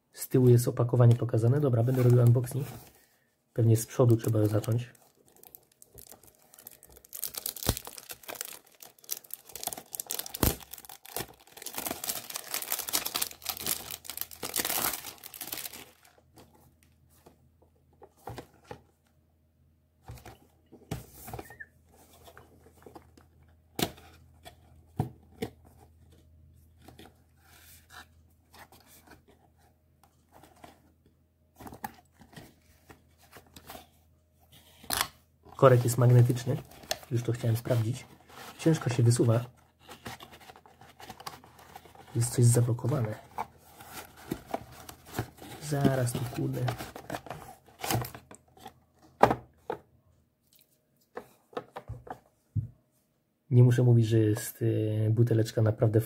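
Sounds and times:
plastic wrap tearing and crinkling: 4.0 - 16.2.

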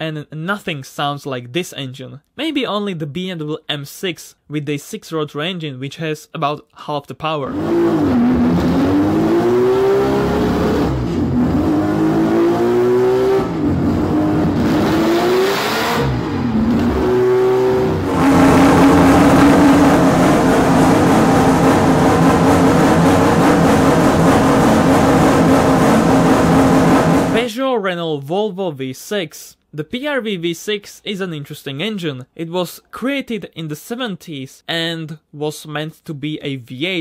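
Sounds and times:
rotary engine revving: 7.5 - 27.4.

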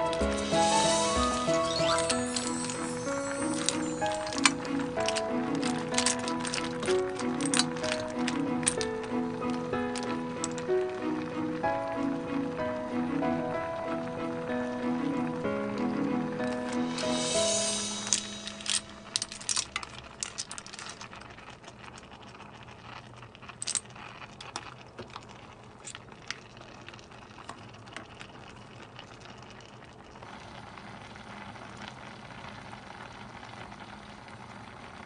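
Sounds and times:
steady hiss: 0.0 - 19.6
clam shells clicking in pot: 1.0 - 11.6, 16.4 - 29.5.

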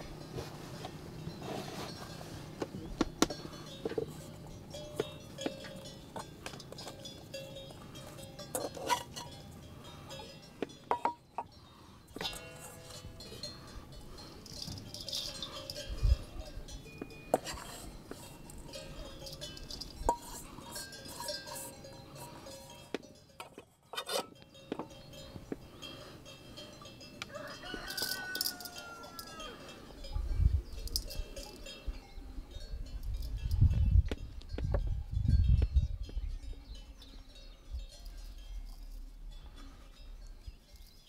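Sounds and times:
clinks and knocks of cooking work: 2.6 - 29.4
bell-like clinks: 12.2 - 23.5, 24.3 - 34.1
rooster crowing: 27.2 - 29.8.

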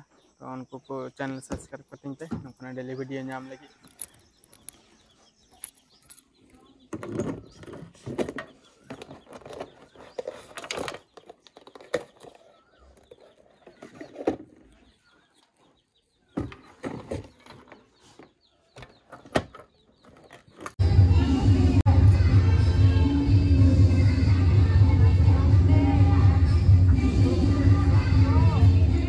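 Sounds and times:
knocks and clatter: 6.9 - 12.4.

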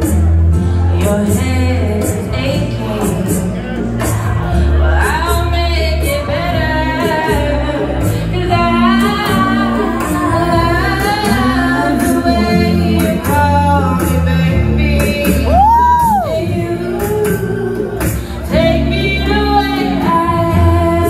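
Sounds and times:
karaoke backing music: 0.0 - 21.0
woman singing into microphone: 0.0 - 21.0.

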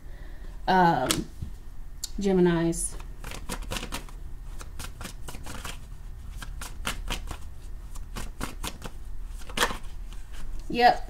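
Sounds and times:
cards being shuffled: 2.9 - 10.7.

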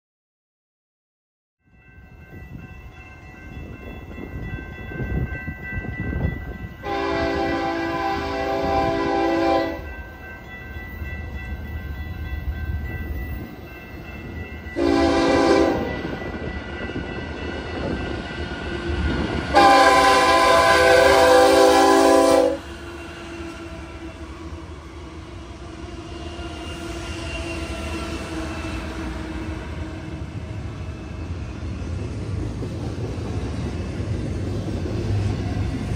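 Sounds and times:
freight train rumble: 1.6 - 35.9
locomotive air horn blasts: 6.8 - 9.9, 14.8 - 15.9, 19.5 - 22.7.

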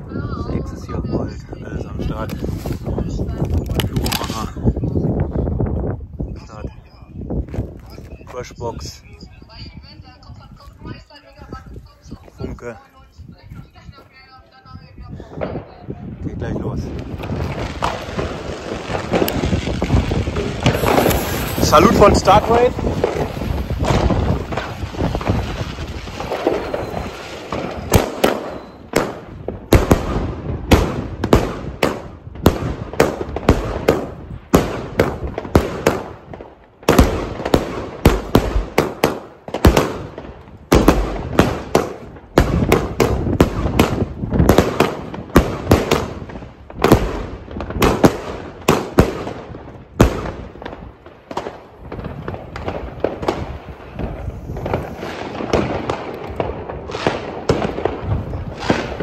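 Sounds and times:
firework battery bangs: 16.9 - 59.0.

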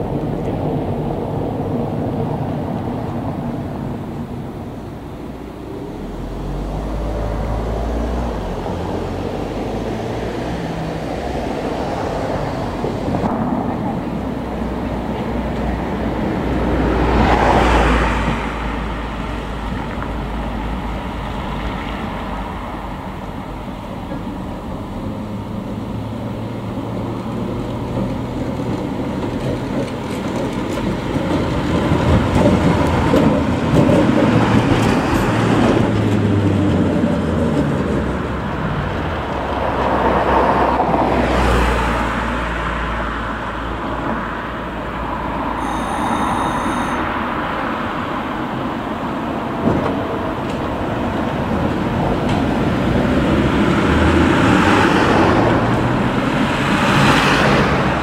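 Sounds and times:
car passing: 0.0 - 58.0
tram rumbling on rails: 0.0 - 58.0
high-pitched ringing tone: 45.5 - 47.8.

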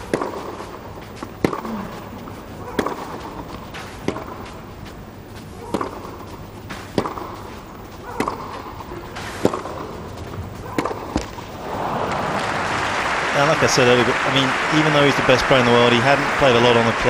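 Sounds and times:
rackets hitting tennis ball: 0.0 - 13.3
ball bouncing on clay: 5.6 - 11.6.

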